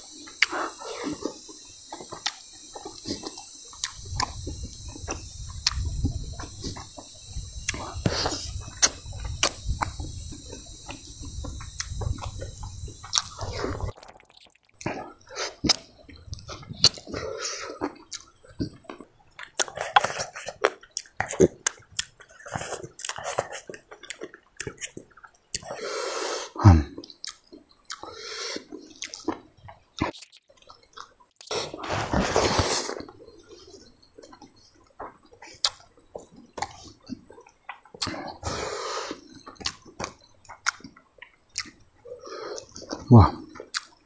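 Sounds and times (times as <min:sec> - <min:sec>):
wet chewing and lip-smacking: 0:00.1 - 0:26.2, 0:26.8 - 0:44.0
mouth clicks: 0:00.1 - 0:44.0
slurping sucks: 0:00.4 - 0:14.2, 0:14.8 - 0:18.8, 0:25.6 - 0:27.0, 0:28.0 - 0:29.2, 0:31.4 - 0:33.8, 0:38.0 - 0:39.8.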